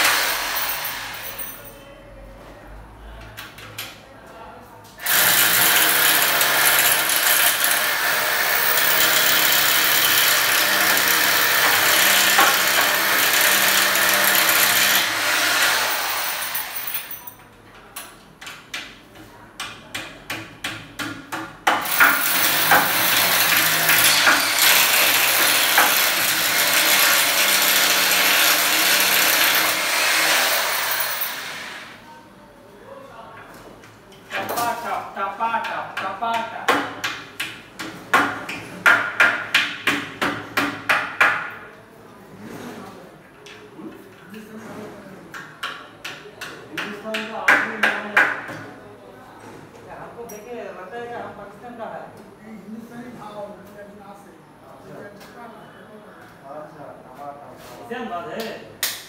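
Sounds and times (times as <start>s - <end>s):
electric drill boring into metal: 0.0s - 1.3s, 5.0s - 17.1s, 21.8s - 31.9s.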